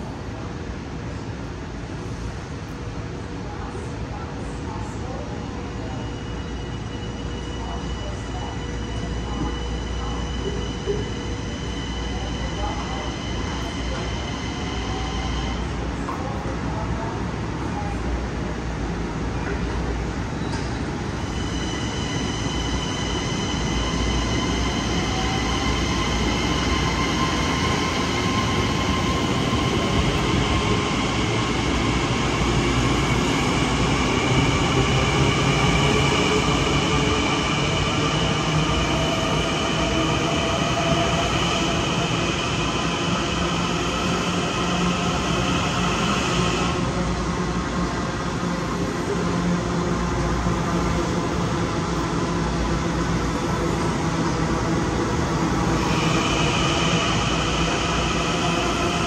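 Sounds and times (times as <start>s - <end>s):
rumble of train cars: 0.0s - 59.0s
train wheels squealing: 5.8s - 15.7s, 20.4s - 31.9s.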